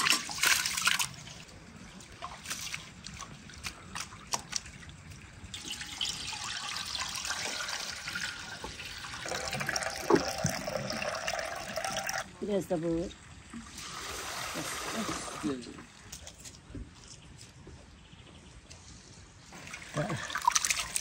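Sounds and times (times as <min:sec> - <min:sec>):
small splashes and drips: 0:00.0 - 0:12.2, 0:19.6 - 0:21.0
water pouring in a stream: 0:00.0 - 0:12.3, 0:13.3 - 0:15.6, 0:19.5 - 0:21.0.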